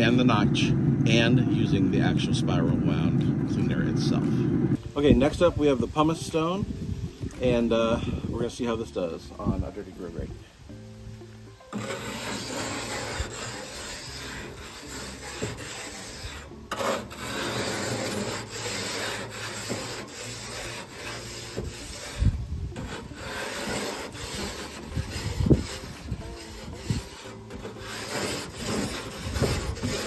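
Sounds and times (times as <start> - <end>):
stone scraping grill grates: 11.7 - 30.0.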